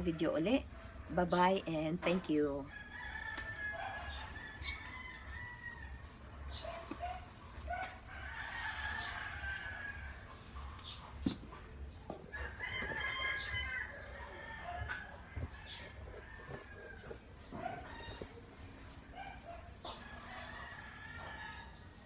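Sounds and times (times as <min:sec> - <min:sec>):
rooster crowing: 0:02.7 - 0:06.2, 0:08.1 - 0:10.3, 0:12.3 - 0:18.4, 0:19.9 - 0:21.8.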